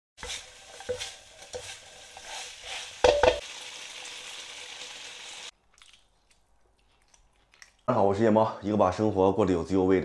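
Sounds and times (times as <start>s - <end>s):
spatula scraping a wok: 0.2s - 3.4s
meat sizzling in a wok: 0.2s - 5.5s
spatula knocking on pan: 3.0s - 3.4s.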